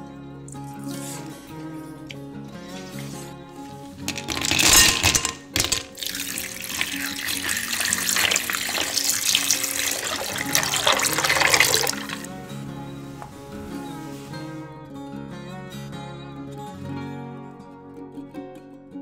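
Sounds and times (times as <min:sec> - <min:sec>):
acoustic guitar music: 0:00.0 - 0:19.0
water pouring onto ice cubes: 0:04.1 - 0:12.3.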